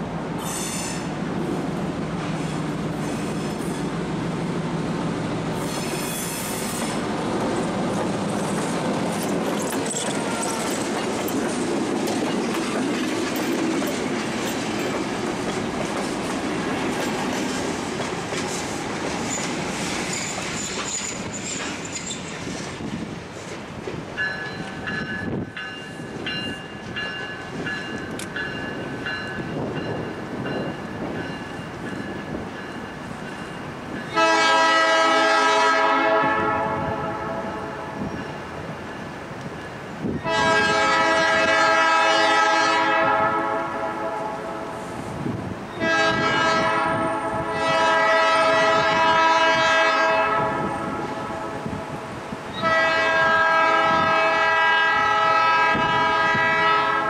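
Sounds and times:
train wheels rumbling on rails: 0:00.0 - 0:57.0
locomotive air horn blasts: 0:34.2 - 0:38.0, 0:40.2 - 0:44.7, 0:45.8 - 0:51.7, 0:52.6 - 0:57.0.

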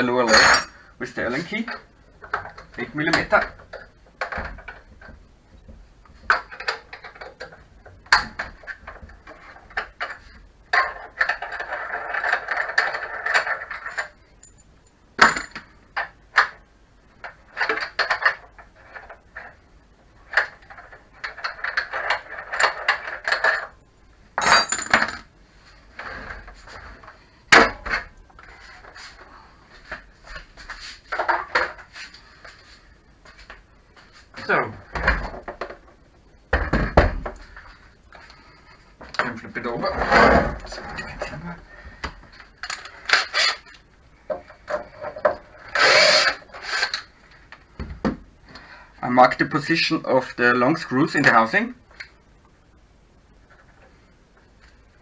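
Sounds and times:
metal clinks and knocks: 0:06.2 - 0:15.7, 0:24.4 - 0:25.3.

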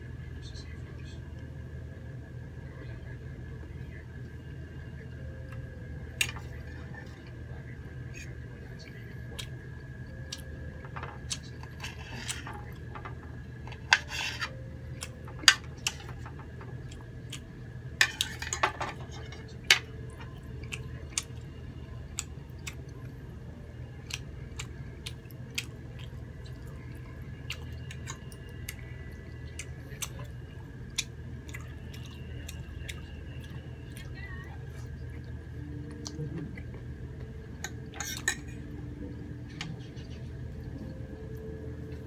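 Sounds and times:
steady low hum: 0:00.0 - 0:42.0
chewing: 0:24.0 - 0:36.9.

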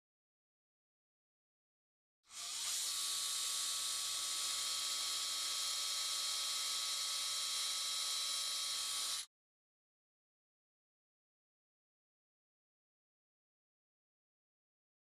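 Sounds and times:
power drill whining: 0:02.3 - 0:09.3.

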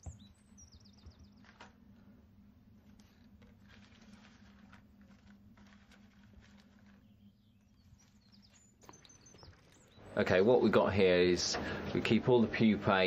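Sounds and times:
soft ticks and rustles: 0:02.8 - 0:10.0.

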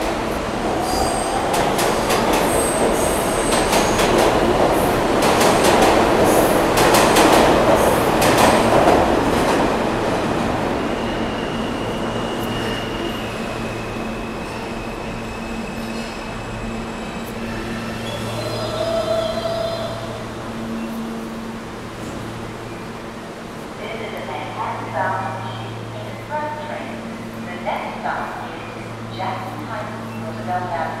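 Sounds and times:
subway train rumbling: 0:00.0 - 0:31.0
train wheels squealing: 0:10.8 - 0:19.6.

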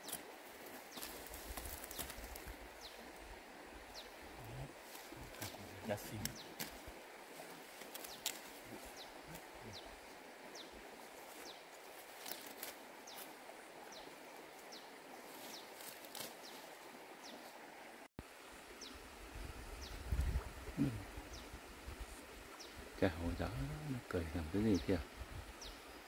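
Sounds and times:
leafy plants rustling: 0:00.0 - 0:17.7
steady hiss: 0:00.0 - 0:26.0.

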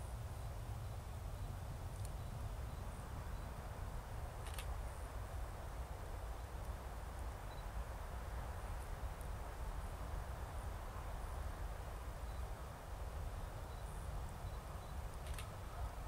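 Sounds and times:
sharp click: 0:15.1 - 0:15.5.

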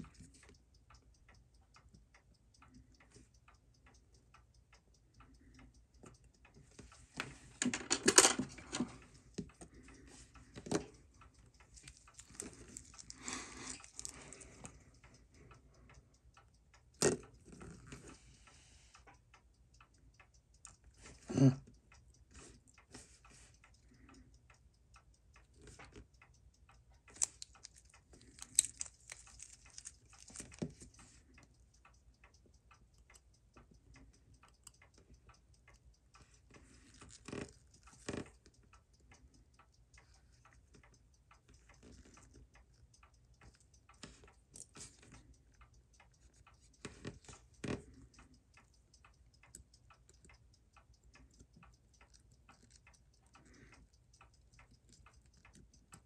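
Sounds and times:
faint rapid watch ticking: 0:00.0 - 0:56.0
tool clicks and knocks: 0:07.6 - 0:09.0.

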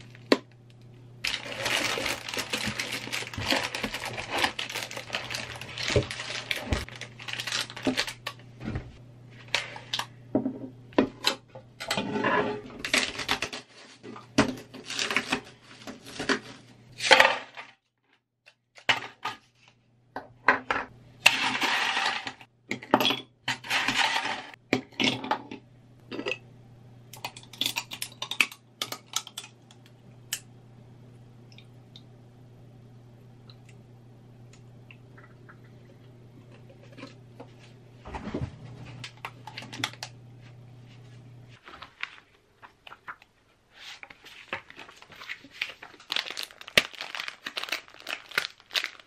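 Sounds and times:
ice cubes clattering into container: 0:01.2 - 0:08.2, 0:21.2 - 0:25.2.

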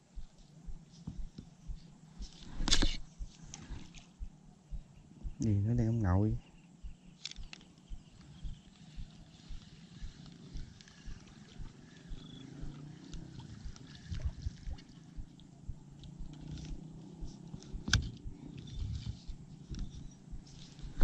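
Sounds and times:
sharp click: 0:02.5 - 0:03.0.

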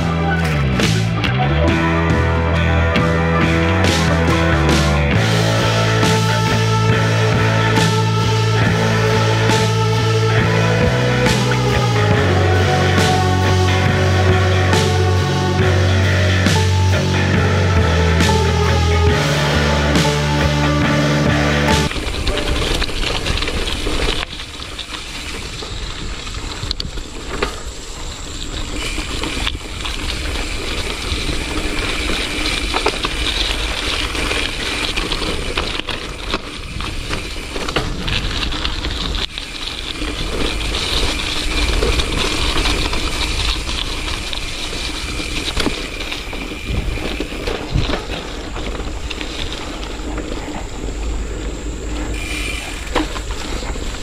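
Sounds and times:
low rumble of tyre noise: 0:00.0 - 0:54.0
bike chain and frame rattling: 0:21.9 - 0:54.0.

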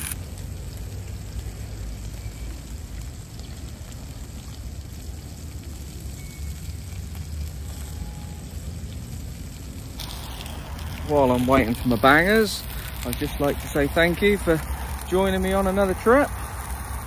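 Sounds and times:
road traffic rumble: 0:00.0 - 0:17.0
faint even hiss: 0:09.9 - 0:17.0.

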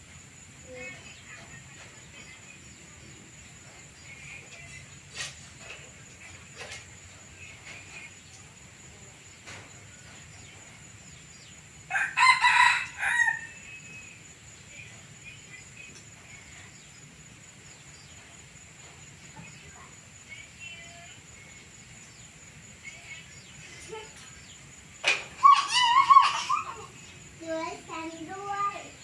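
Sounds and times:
faint chicken calls: 0:09.4 - 0:14.2
rooster crowing: 0:11.9 - 0:13.9.

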